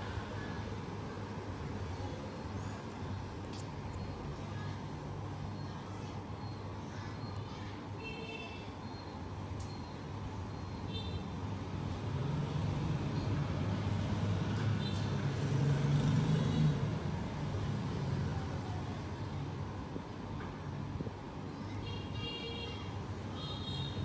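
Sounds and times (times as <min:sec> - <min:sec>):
high-pitched beeps: 0:08.8 - 0:10.9.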